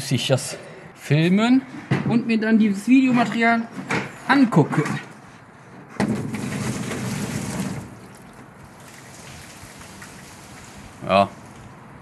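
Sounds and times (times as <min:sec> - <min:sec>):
water splashing onto a roof: 0:06.0 - 0:11.7
faint water trickle: 0:08.0 - 0:11.5.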